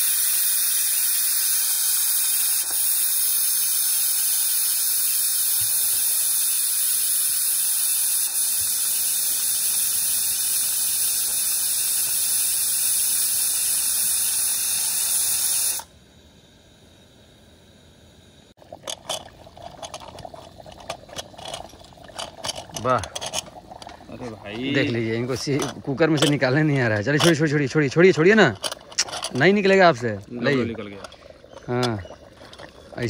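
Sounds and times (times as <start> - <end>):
pressure cooker steam hissing: 0.0 - 17.6, 18.4 - 33.0.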